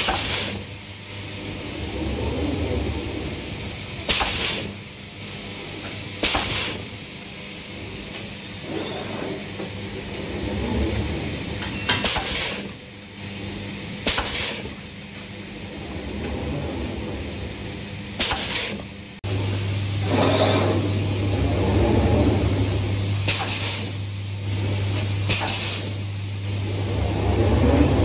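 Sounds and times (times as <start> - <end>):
low machine hum: 0.0 - 28.0.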